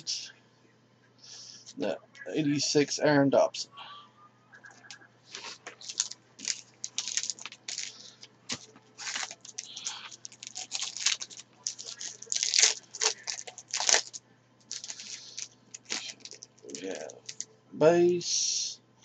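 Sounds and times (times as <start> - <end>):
foil wrapper crinkling and tearing: 5.3 - 17.5.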